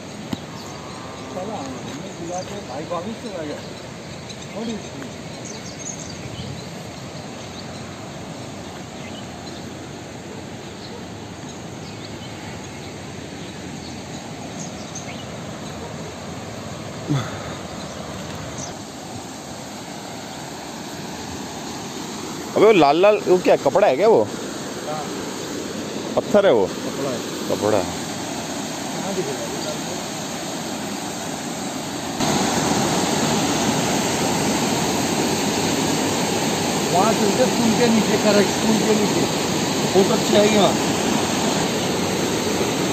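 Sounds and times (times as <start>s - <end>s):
faint bird chirps: 0.0s - 16.3s
river rushing over rocks: 13.3s - 42.9s.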